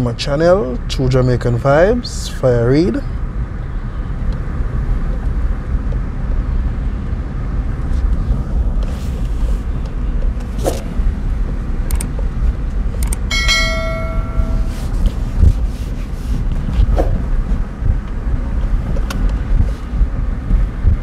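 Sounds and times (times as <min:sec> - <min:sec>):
car driving low rumble: 0:00.0 - 0:21.0
ringing bell chime: 0:13.3 - 0:15.0.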